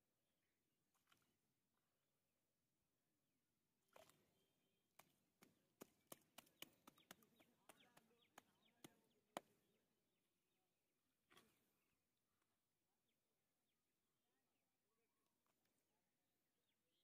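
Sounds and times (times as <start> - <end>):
hands patting wet mud: 3.9 - 9.8.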